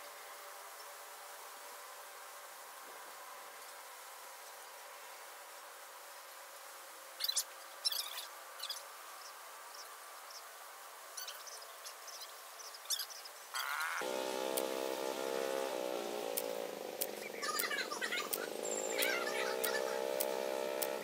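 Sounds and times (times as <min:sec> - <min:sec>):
faint steady drone: 0:00.0 - 0:21.0
loud buzzing drone: 0:13.6 - 0:21.0.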